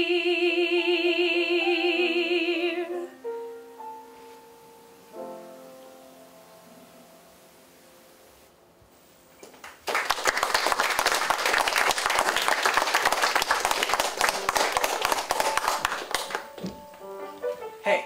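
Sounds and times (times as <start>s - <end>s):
audience applauding: 9.4s - 16.6s.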